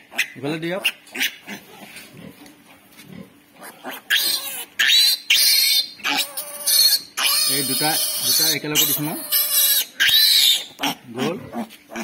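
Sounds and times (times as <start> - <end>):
piglet squealing: 0.0 - 2.0, 3.6 - 12.0.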